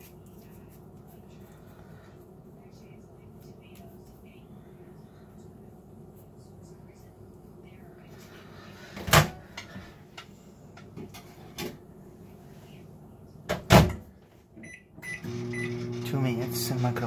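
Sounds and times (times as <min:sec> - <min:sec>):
microwave humming: 0:13.5 - 0:17.0.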